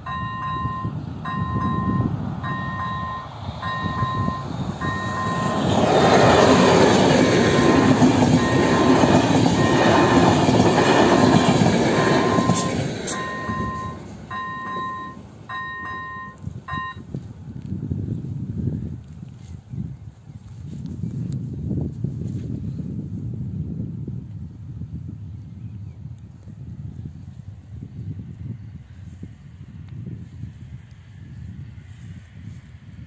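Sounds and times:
level-crossing bell ringing: 0.0 - 5.6, 7.4 - 17.0
passenger train passing: 0.0 - 17.0.

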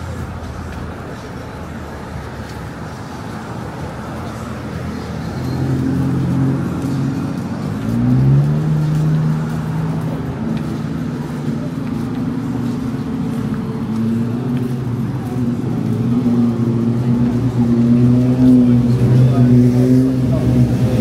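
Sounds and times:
traffic noise: 0.0 - 21.0.

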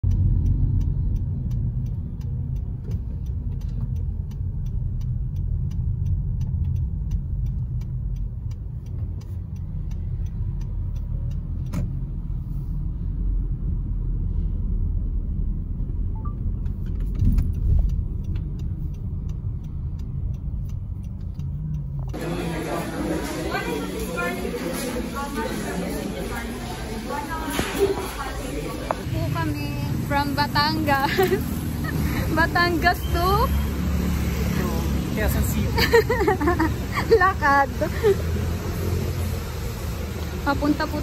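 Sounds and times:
light regular ticking: 0.0 - 14.3, 15.0 - 22.2, 29.0 - 39.2
car interior engine rumble: 0.0 - 22.7.

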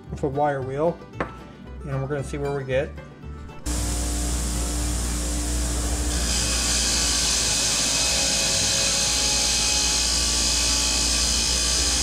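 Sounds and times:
grinder motor hum: 3.6 - 12.0.

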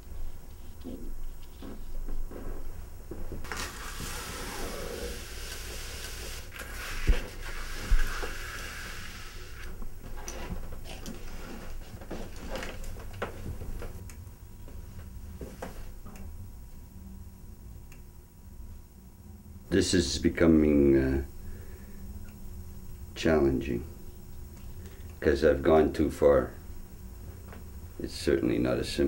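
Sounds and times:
brush scraping across paper: 3.5 - 9.7.

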